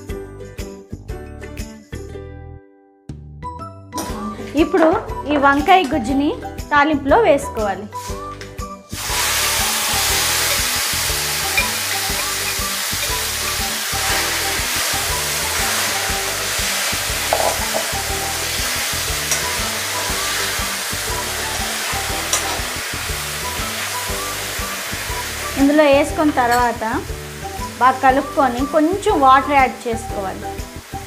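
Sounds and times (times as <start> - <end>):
food sizzling in hot oil: 8.9 - 31.0.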